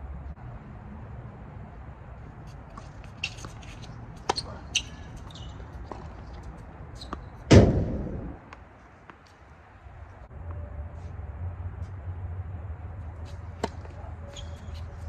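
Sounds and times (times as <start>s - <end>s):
shoe squeaks: 2.8s - 7.5s, 13.3s - 15.0s
loud thump: 7.5s - 8.4s
tennis ball hits: 13.5s - 14.8s.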